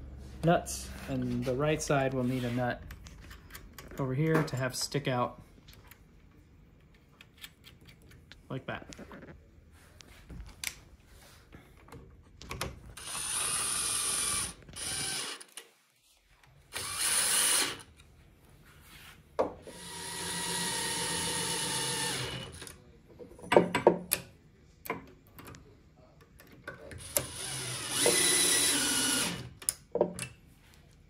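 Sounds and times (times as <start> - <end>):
cordless drill driving bolts: 13.0 - 15.5, 16.7 - 17.9, 19.6 - 22.7, 27.0 - 29.6.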